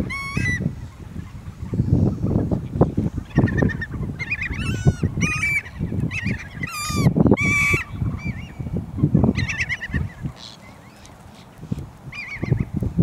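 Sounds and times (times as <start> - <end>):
low rumble of wind or water: 0.0 - 13.0
birds making harsh calls: 3.3 - 8.6, 9.4 - 12.7.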